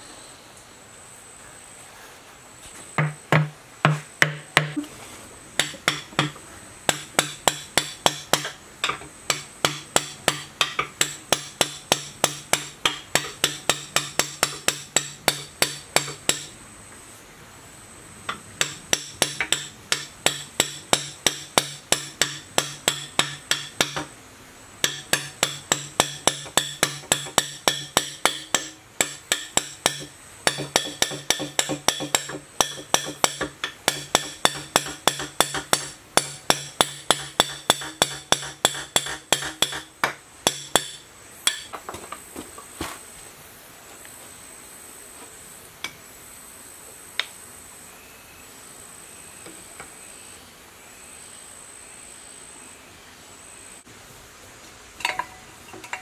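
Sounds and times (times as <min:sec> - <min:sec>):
hammer striking metal: 0:05.6 - 0:16.6, 0:18.3 - 0:24.1, 0:24.8 - 0:41.8, 0:55.0 - 0:56.0.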